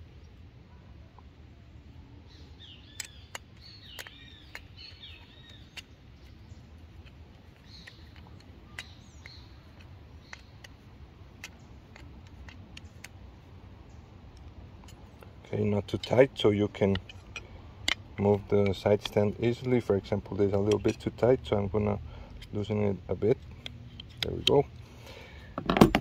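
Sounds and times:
birds chirping: 0:00.0 - 0:25.6
allen key metal clicks: 0:02.6 - 0:24.8.

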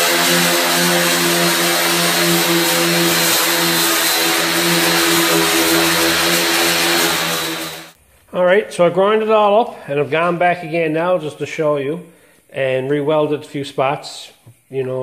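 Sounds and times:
angle grinder grinding steel: 0:00.0 - 0:08.0.

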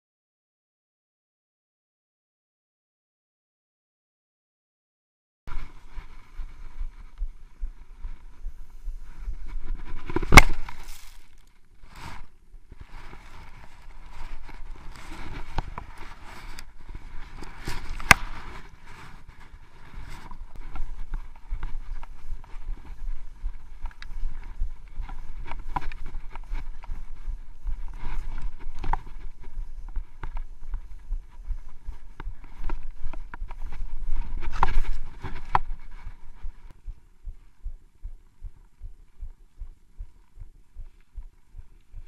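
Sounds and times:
skis scraping through snow: 0:08.5 - 0:30.1.

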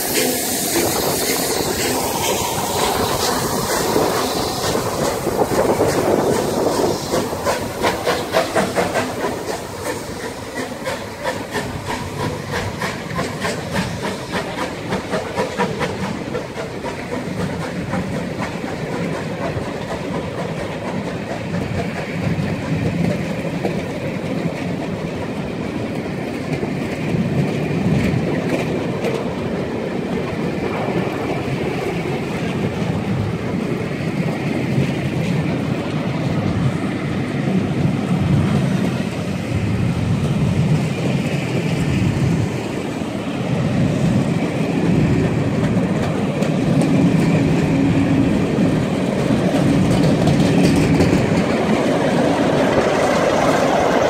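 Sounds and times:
steam hissing: 0:00.0 - 0:25.1
steam locomotive exhaust beats: 0:00.0 - 0:54.0
train coaches rumbling: 0:00.0 - 0:54.0
wheels clicking over rail joints: 0:00.1 - 0:31.0, 0:43.8 - 0:54.0.

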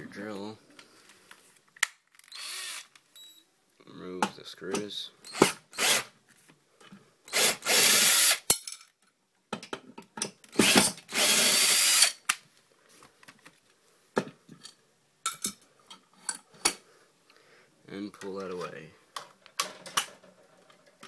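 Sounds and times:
power drill running: 0:02.3 - 0:02.9, 0:05.3 - 0:06.1, 0:07.3 - 0:08.4, 0:10.6 - 0:12.2.

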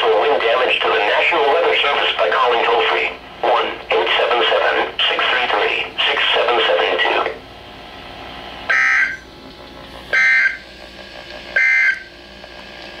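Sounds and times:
digital data tone bursts: 0:08.7 - 0:09.2, 0:10.2 - 0:10.6, 0:11.6 - 0:12.1.

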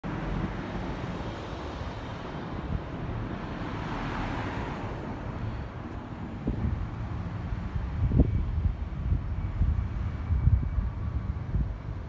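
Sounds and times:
city street traffic rumble: 0:00.0 - 0:12.0
vehicle passing: 0:03.3 - 0:08.2.

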